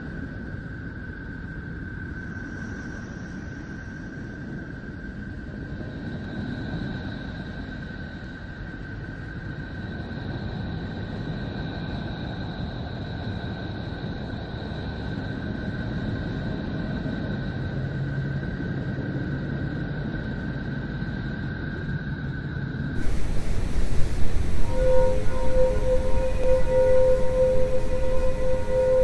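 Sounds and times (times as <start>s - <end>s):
low rush of noise: 23.0s - 29.0s
thin high tones: 23.0s - 29.0s.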